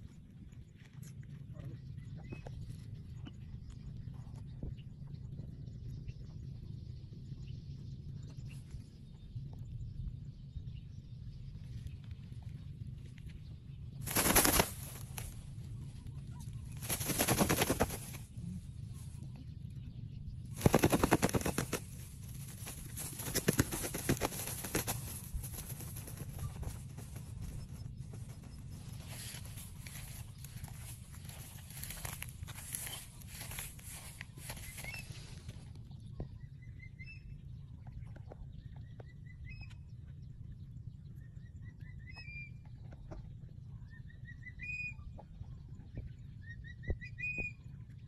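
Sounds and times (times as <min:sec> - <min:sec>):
steady low rumble: 0:00.0 - 0:48.0
dry grass crackling: 0:14.0 - 0:18.4, 0:20.5 - 0:35.6.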